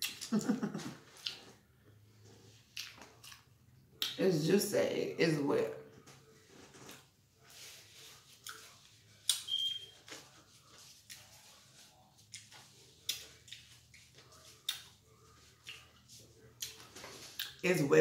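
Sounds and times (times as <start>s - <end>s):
mouth smacks while chewing: 0.0s - 1.6s, 2.6s - 4.2s, 8.4s - 9.6s, 12.2s - 17.6s
paper napkin rustling: 6.3s - 17.4s.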